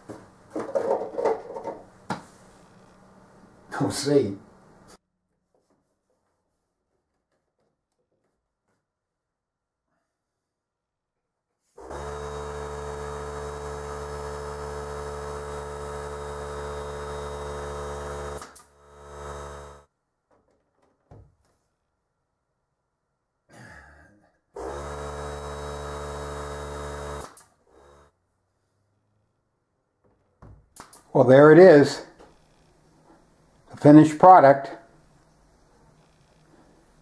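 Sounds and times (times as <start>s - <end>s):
air compressor motor humming: 11.8s - 19.8s, 24.6s - 28.2s.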